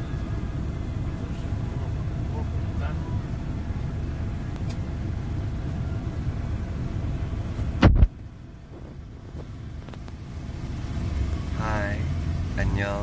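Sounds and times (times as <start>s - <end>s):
road and engine rumble in car: 0.0s - 13.0s
loud short thump: 7.8s - 8.2s.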